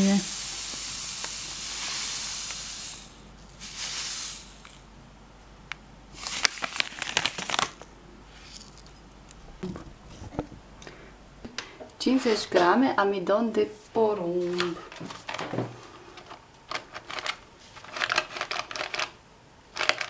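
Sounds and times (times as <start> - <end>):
granules pouring into a bowl: 6.2 - 7.8
plastic packet crinkling: 6.2 - 7.9.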